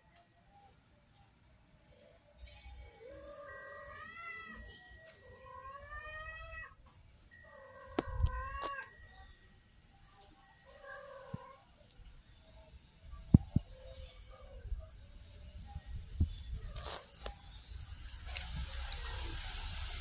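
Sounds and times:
cat meowing: 0:03.0 - 0:06.8, 0:07.5 - 0:09.0, 0:10.7 - 0:11.6.

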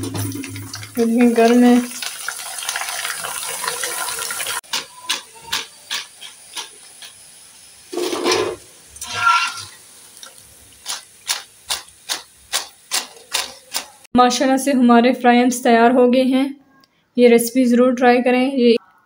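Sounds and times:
food sizzling in hot oil: 0:00.0 - 0:14.1.

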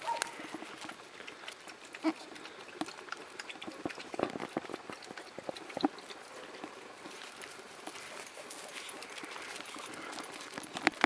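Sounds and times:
dog eating from a bowl: 0:00.0 - 0:11.0.

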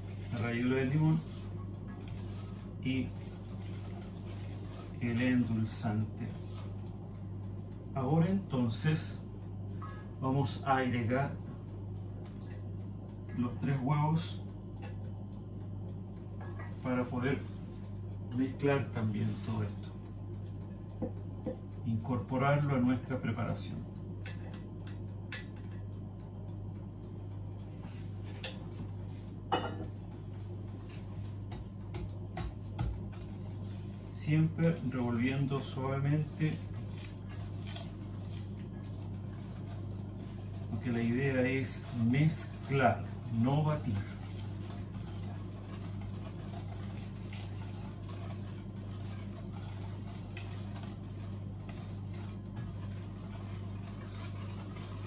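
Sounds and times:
utensil scraping mixing bowls: 0:00.0 - 0:07.1, 0:30.6 - 0:55.0
steady low hum: 0:00.0 - 0:55.0.

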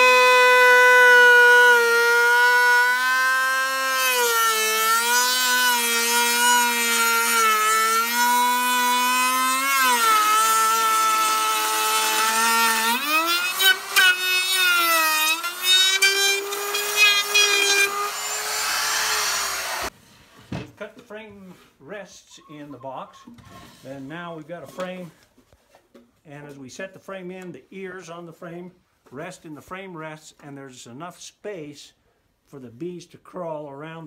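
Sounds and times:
router motor whining: 0:00.0 - 0:19.9.

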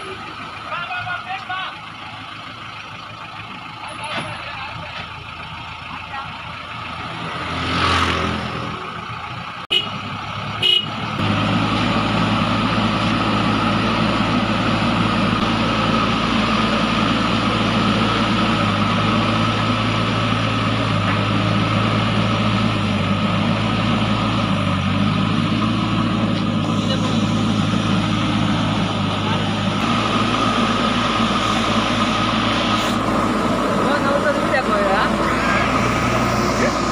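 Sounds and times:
diesel engine running loudly: 0:00.0 - 0:36.9
horn toot: 0:10.6 - 0:11.0.

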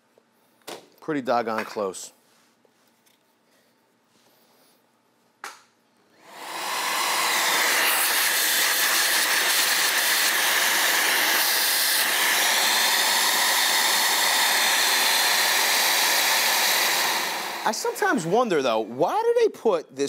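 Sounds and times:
cordless vacuum running: 0:06.1 - 0:18.9.

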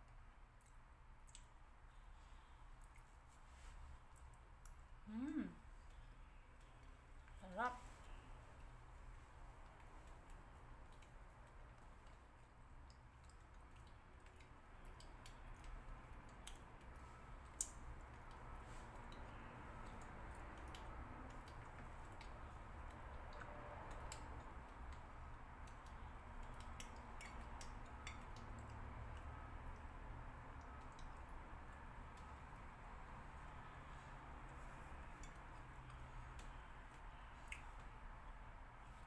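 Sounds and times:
low steady hum: 0:00.0 - 0:39.0
quiet chewing: 0:00.0 - 0:39.0.

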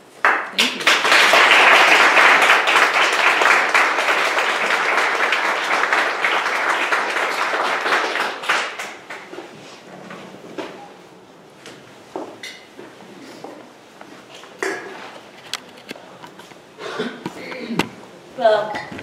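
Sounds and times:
audience applauding: 0:00.2 - 0:09.3.

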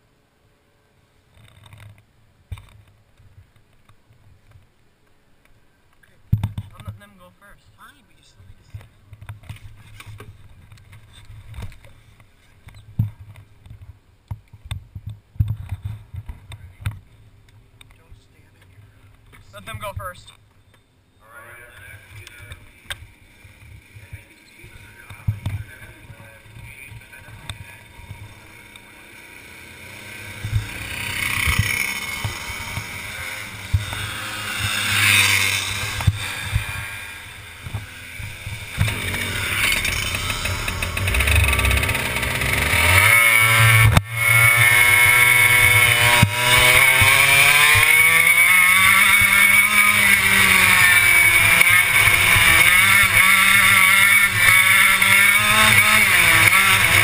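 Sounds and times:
quieter engine noise: 0:00.0 - 0:57.0
kart engine revving: 0:22.0 - 0:57.0.

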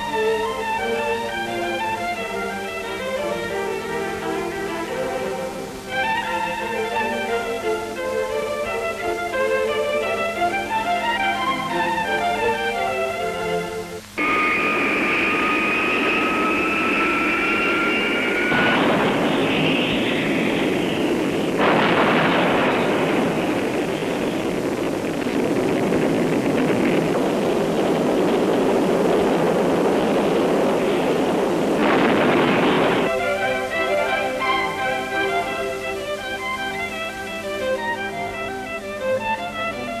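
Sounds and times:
jet aircraft whine and roar: 0:14.0 - 0:39.6.

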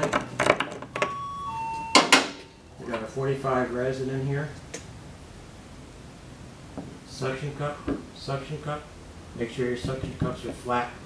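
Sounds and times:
electronic two-tone chime: 0:01.0 - 0:02.6.

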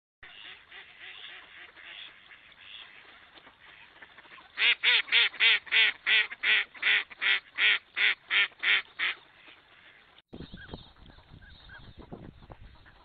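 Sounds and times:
duck quacking: 0:00.2 - 0:10.2.

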